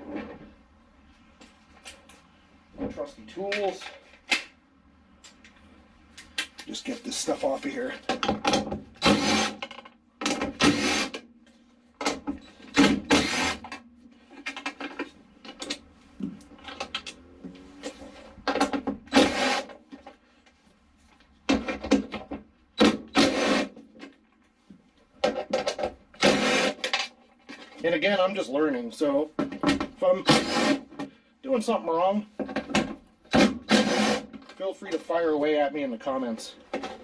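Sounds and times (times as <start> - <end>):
cordless driver spinning out bolts: 9.0 - 9.7, 10.6 - 11.2, 12.7 - 13.7, 19.1 - 19.8, 30.2 - 30.9, 33.3 - 34.3.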